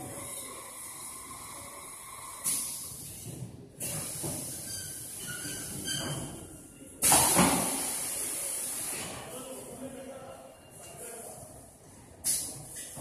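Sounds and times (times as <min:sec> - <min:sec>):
filling machine hissing: 0:07.0 - 0:09.0.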